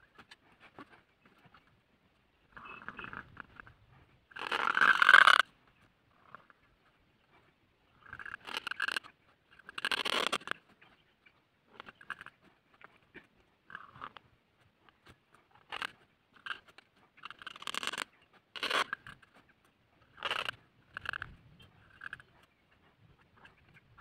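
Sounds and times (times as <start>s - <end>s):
reed pen scratching on paper: 8.1s - 11.0s, 14.8s - 24.0s.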